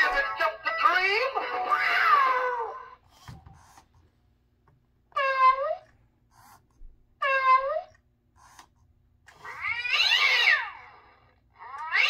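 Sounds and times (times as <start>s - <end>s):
toy cat yowling: 0.7s - 3.0s, 5.1s - 5.9s, 7.2s - 8.0s, 9.3s - 11.0s, 11.6s - 12.0s
toy cat meow: 0.8s - 2.8s, 5.1s - 5.9s, 7.2s - 8.0s, 9.3s - 11.0s, 11.6s - 12.0s.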